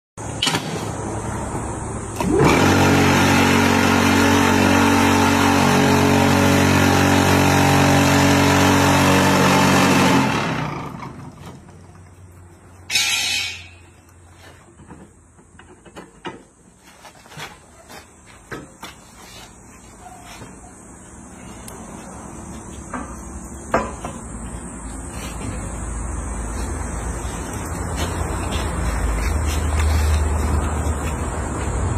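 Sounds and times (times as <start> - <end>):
vibrator motor rattling buzz: 2.1 - 11.5.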